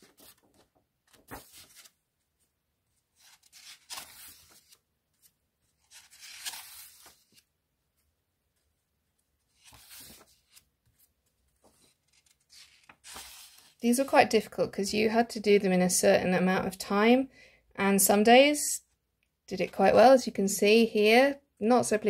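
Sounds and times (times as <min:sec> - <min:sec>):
paper pages rustling: 0:00.0 - 0:13.8.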